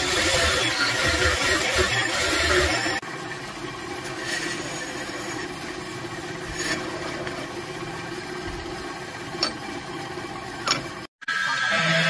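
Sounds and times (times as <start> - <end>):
bandsaw cutting metal: 0.0 - 3.0, 4.0 - 5.7
even hum: 0.0 - 12.0.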